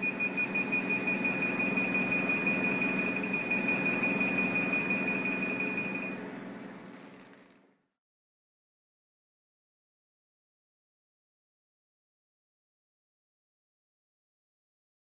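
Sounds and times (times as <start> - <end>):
high-pitched beep: 0.0 - 6.2
machine hum with pulsing: 0.0 - 7.8.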